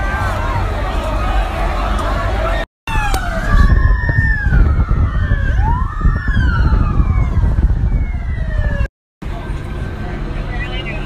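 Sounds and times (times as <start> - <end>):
police sirens wailing: 0.0 - 11.0.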